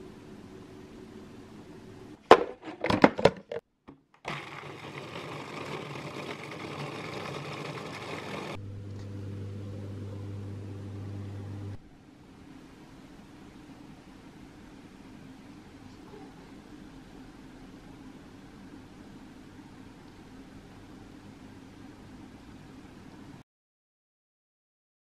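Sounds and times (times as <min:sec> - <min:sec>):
food processor motor running: 0:04.2 - 0:11.2.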